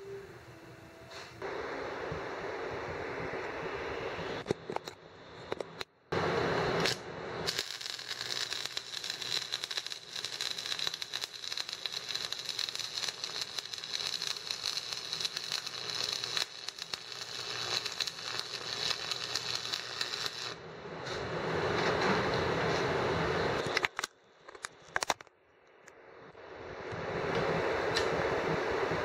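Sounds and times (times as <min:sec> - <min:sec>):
welding arc crackling and sizzling: 0:05.3 - 0:20.6.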